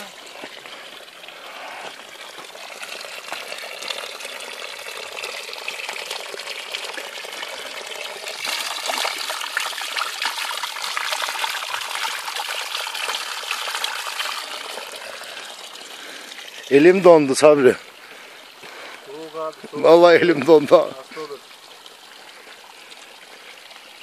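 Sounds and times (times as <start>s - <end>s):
water splashing onto rocks: 8.3s - 21.4s.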